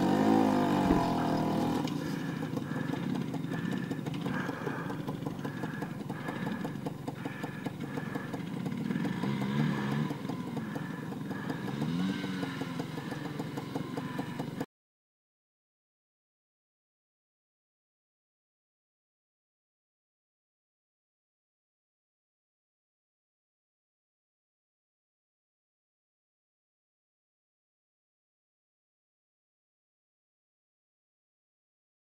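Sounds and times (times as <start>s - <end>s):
two-stroke scooter engine revving: 0.0s - 14.7s.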